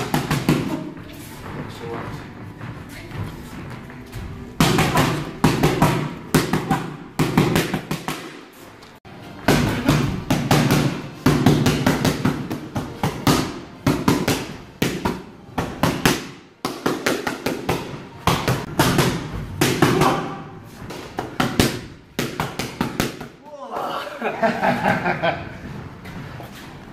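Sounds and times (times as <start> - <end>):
boxing gloves hitting pads: 0.0 - 1.0, 4.5 - 8.6, 9.3 - 23.4.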